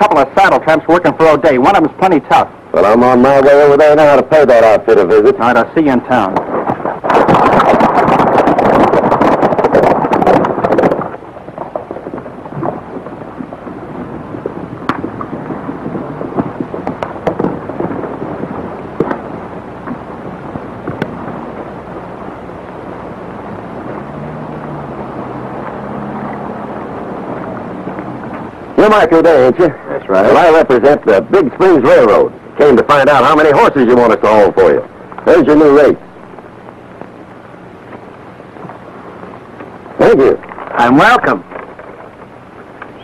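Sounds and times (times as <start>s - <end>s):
horses galloping: 0.0s - 43.0s
old film soundtrack crackle: 0.0s - 43.0s
hoof clops: 6.3s - 28.6s.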